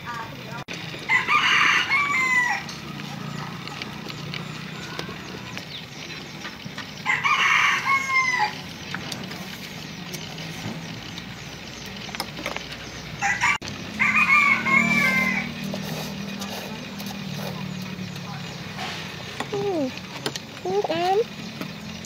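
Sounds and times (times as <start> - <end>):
rooster crowing: 1.0 - 4.0, 7.0 - 8.7, 13.2 - 15.7.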